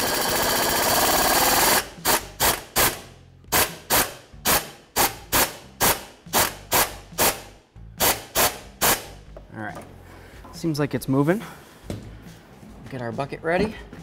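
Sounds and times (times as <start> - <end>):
pneumatic wrench bursts: 0.0 - 9.2.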